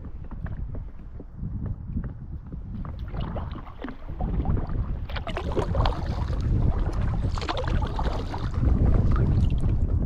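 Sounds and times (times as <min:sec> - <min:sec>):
wind rumbling on microphone: 0:00.0 - 0:10.0
water splashing and dripping: 0:03.0 - 0:09.9.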